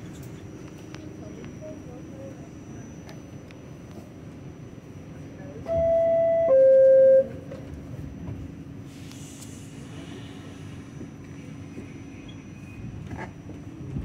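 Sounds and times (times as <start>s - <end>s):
hiss: 8.8s - 11.6s.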